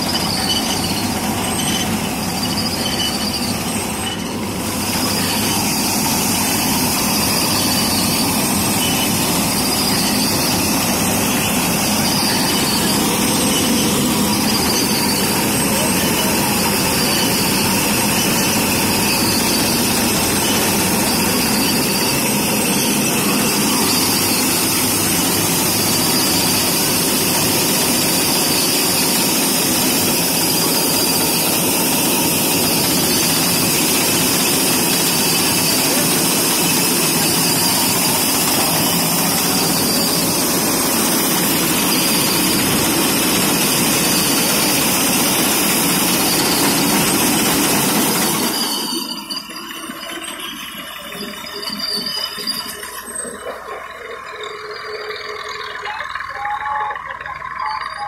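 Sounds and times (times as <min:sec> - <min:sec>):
tractor engine running under load: 0:00.0 - 0:58.0.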